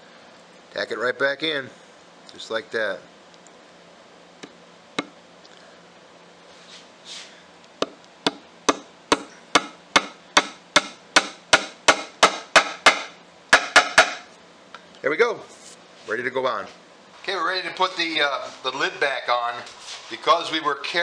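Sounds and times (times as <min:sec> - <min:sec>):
small hammer tapping pins: 0:04.4 - 0:05.2, 0:07.8 - 0:14.3.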